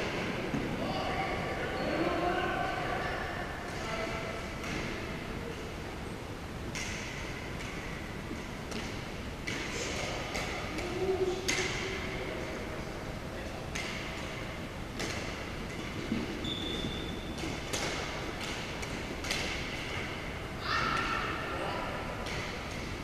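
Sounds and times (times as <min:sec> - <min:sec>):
racket hitting shuttlecock: 0:06.7 - 0:08.0, 0:13.7 - 0:14.4, 0:15.0 - 0:16.4, 0:17.3 - 0:20.2, 0:22.2 - 0:22.9
shoe squeak: 0:16.4 - 0:17.4.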